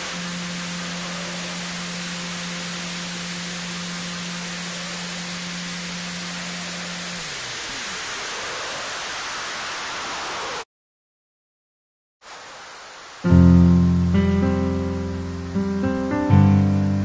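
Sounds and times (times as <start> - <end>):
model aircraft motor and propeller hum: 0.0 - 9.1
airflow hiss: 0.0 - 10.6, 12.2 - 17.0.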